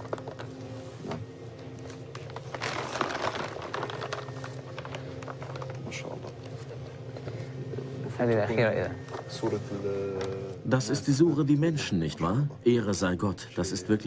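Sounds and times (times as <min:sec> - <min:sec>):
heavy pages turning: 0:00.0 - 0:07.5
steady low hum: 0:00.0 - 0:14.0.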